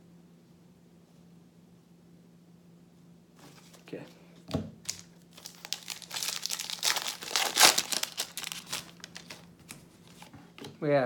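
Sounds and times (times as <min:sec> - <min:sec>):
card pack wrapper tearing: 0:04.8 - 0:09.5.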